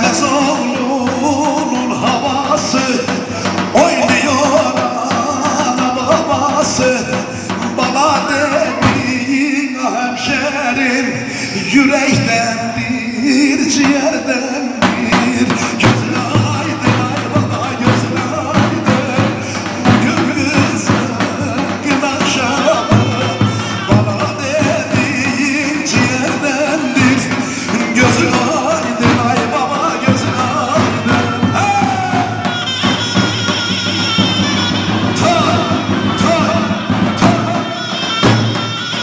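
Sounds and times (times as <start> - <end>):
drum beat: 0.0 - 39.0
reedy wind instrument melody: 15.3 - 39.0.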